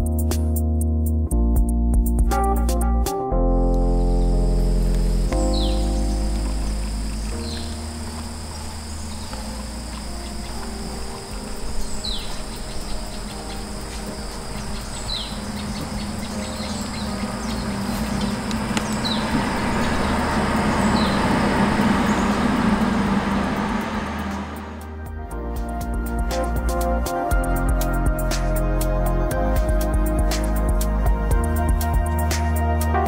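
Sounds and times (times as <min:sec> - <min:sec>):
bird chirping: 0:03.8 - 0:24.9
high insect drone: 0:03.8 - 0:32.7
broad rushing noise: 0:04.8 - 0:25.7.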